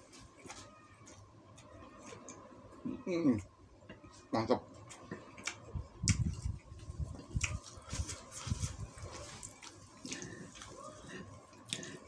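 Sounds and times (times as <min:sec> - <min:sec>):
man chewing rice: 0:04.8 - 0:12.0.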